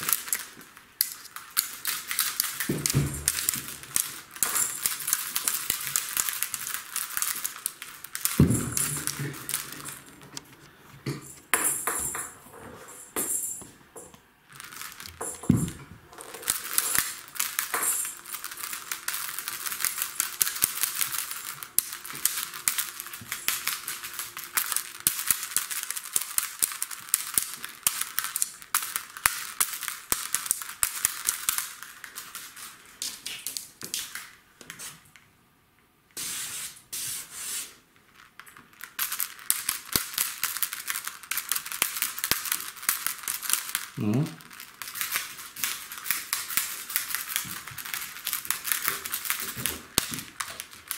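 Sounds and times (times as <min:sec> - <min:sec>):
clicking and crinkling rustle: 0:00.0 - 0:11.5, 0:38.0 - 0:50.9.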